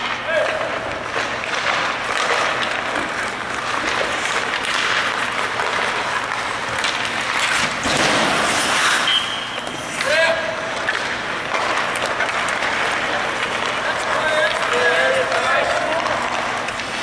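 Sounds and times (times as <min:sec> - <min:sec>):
skates scraping on ice: 0:00.0 - 0:17.0
sticks and pucks clacking: 0:00.0 - 0:17.0
high steady whistle: 0:09.0 - 0:09.6.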